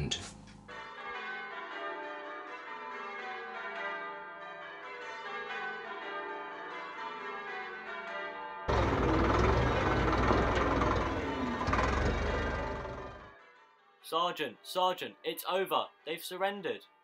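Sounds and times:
church bells ringing a peal: 0:00.7 - 0:13.7.

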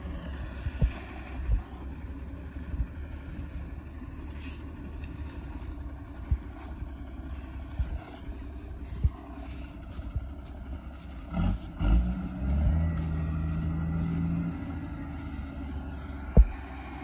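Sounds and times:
vehicle rumbling on dirt road: 0:00.0 - 0:17.0
thumps from bumps: 0:16.2 - 0:16.6.

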